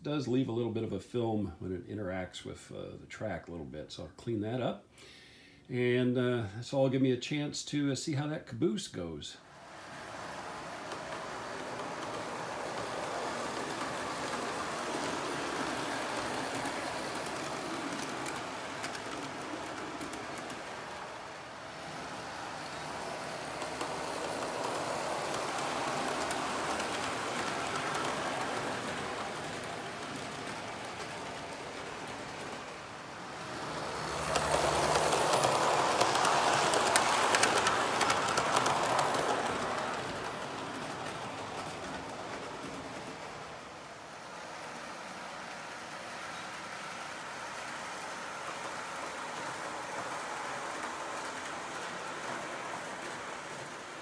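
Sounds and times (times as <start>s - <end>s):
model train rumbling on rails: 9.5s - 54.0s
track clicks: 10.2s - 43.4s.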